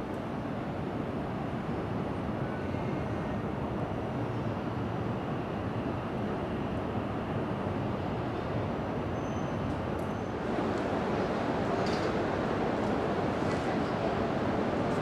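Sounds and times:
train rushing past: 9.6 - 15.0.

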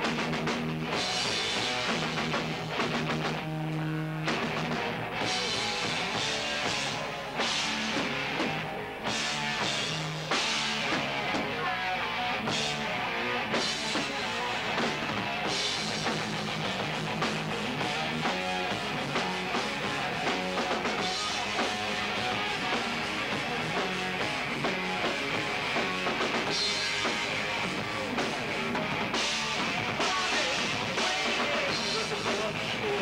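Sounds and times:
drum kit: 0.0 - 33.0
electric guitar: 0.0 - 33.0
person singing into a microphone: 30.0 - 33.0.

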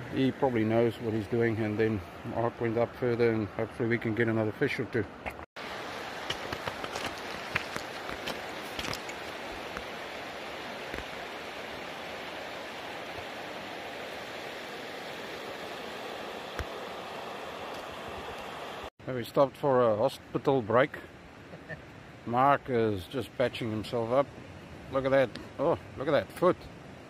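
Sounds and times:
river water rushing: 5.6 - 18.9.

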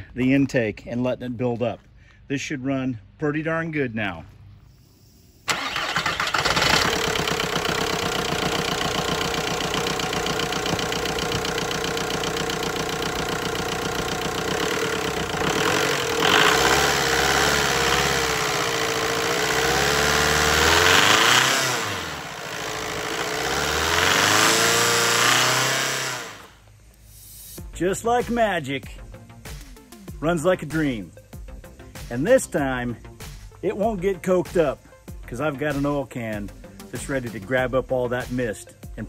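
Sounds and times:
diesel engine idling and revving: 5.5 - 26.6.

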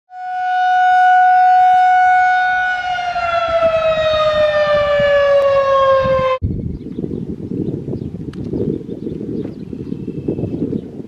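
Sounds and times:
warning siren winding down: 0.1 - 6.4.

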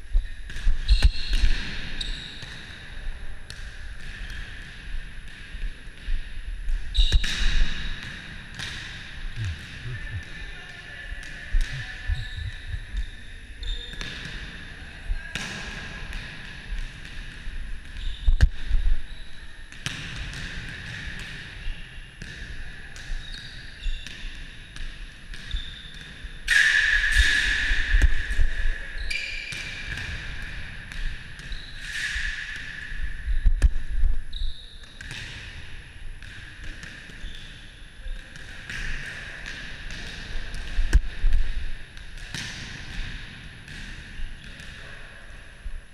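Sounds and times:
ball hitting gym floor: 3.4 - 14.6, 15.3 - 19.0, 24.1 - 37.4, 38.1 - 44.9
hands slapping volleyball: 7.1 - 10.3.

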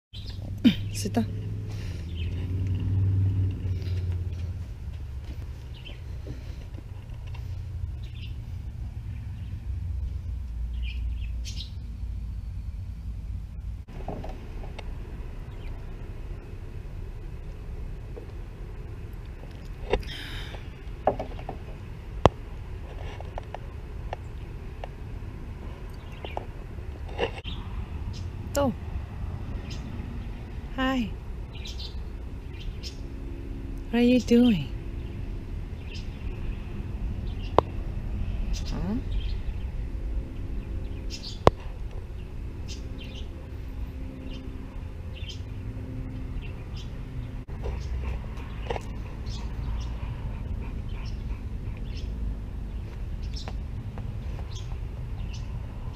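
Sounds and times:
small birds chirping: 0.1 - 2.5, 5.3 - 6.6, 7.9 - 13.1, 25.9 - 26.5, 27.4 - 28.8, 29.5 - 33.1, 34.0 - 55.7
low steady hum: 0.2 - 55.9
steady low rumble: 0.2 - 55.9.

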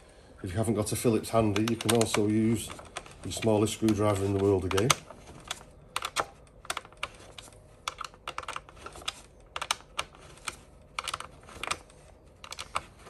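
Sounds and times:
screwdriver clicking on plastic: 1.4 - 13.0.

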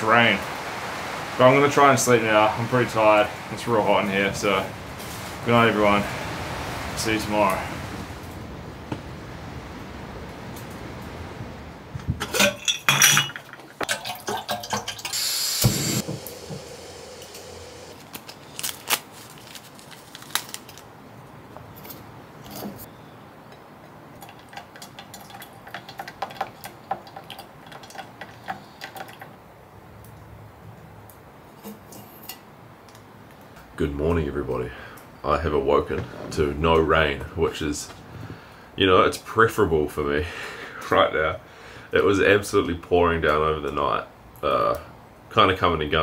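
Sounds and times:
metal mug and kettle clinking: 12.2 - 15.2.

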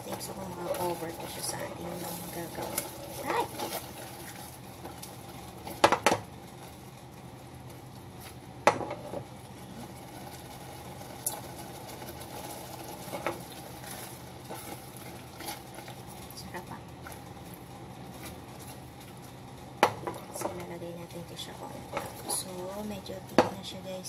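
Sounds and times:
sauce being stirred: 0.1 - 8.6, 9.5 - 20.7, 21.7 - 22.7.

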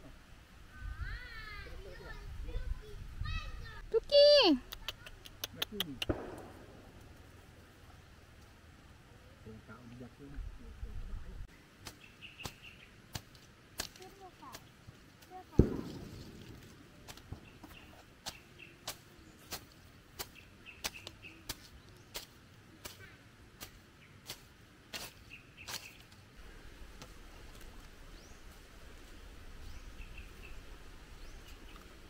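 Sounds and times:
steady low rumble: 6.1 - 9.1.

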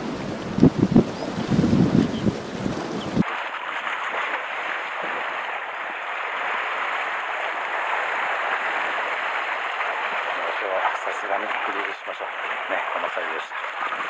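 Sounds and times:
wind buffeting microphone: 0.0 - 3.2
seawater splashing around rocks: 0.0 - 14.0.

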